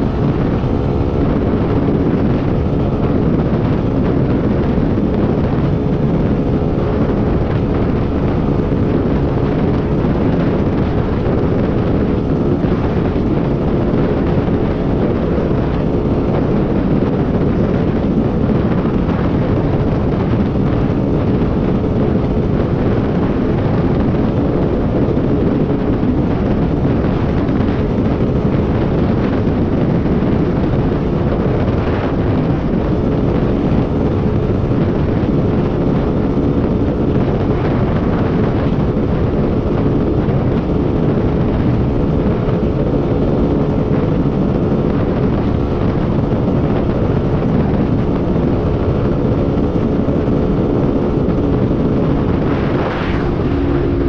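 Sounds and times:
wind rush on microphone: 0.0 - 54.0
motorcycle engine running: 47.0 - 54.0.

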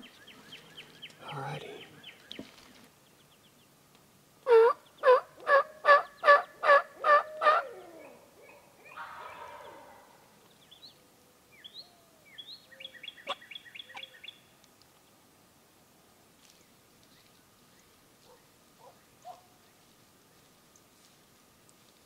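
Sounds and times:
songbirds chirping: 0.0 - 22.0
turkey yelping: 4.5 - 8.1, 8.9 - 10.1
turkey raspy call: 4.5 - 10.2.

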